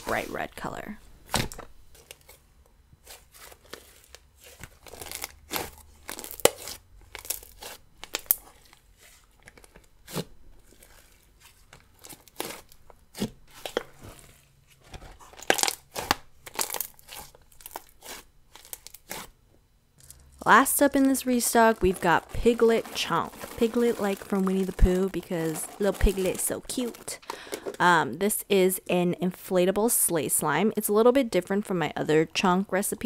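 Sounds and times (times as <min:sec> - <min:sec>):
slime popping and crackling: 0:04.9 - 0:08.7, 0:15.4 - 0:19.3, 0:20.1 - 0:27.3.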